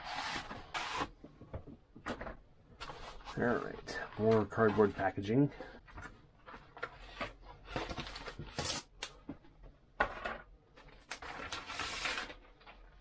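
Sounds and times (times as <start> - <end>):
cardboard packaging being handled: 10.9 - 13.0
paper rustling: 10.9 - 13.0.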